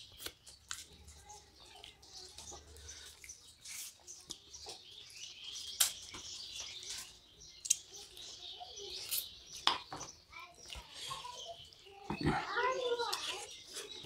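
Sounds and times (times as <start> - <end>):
wet chewing and lip smacks: 1.7 - 4.8.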